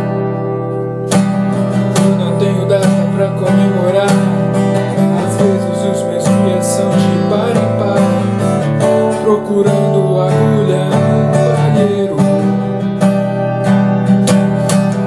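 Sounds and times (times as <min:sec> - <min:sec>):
acoustic guitar strumming: 0:00.0 - 0:15.0
man singing: 0:01.6 - 0:13.3.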